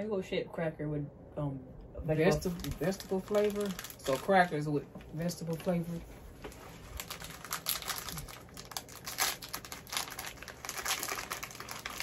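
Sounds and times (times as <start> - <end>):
plastic wrapper crinkling: 2.4 - 4.7, 6.5 - 12.0.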